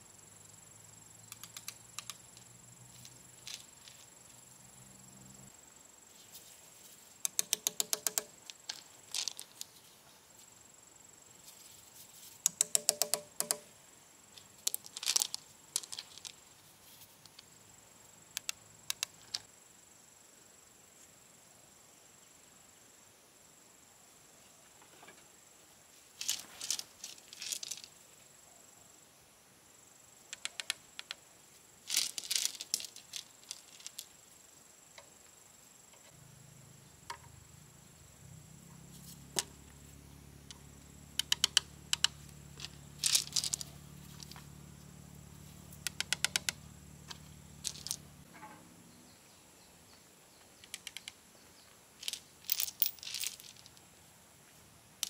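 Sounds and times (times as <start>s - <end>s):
pebbles clattering: 2.9s - 4.4s, 7.4s - 9.9s, 14.4s - 16.4s, 26.2s - 28.0s, 31.9s - 34.2s, 42.0s - 44.4s, 47.1s - 48.0s, 52.0s - 53.8s
trowel tapping and scraping bricks: 12.5s - 13.7s.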